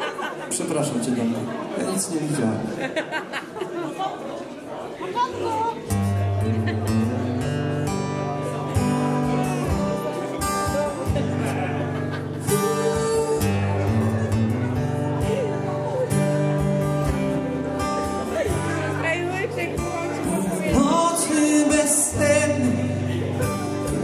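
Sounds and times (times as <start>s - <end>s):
acoustic guitar strumming chords: 5.8s - 24.0s.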